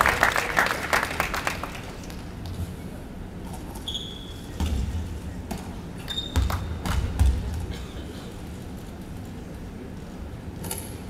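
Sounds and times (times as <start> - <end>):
sneaker squeaks: 3.8 - 4.8, 6.0 - 6.8.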